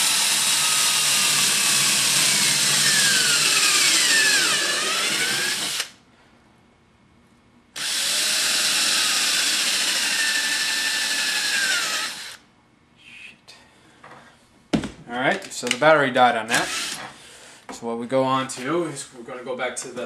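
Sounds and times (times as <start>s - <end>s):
cordless drill boring into wood: 0.0s - 5.9s, 7.8s - 12.4s, 16.5s - 17.1s.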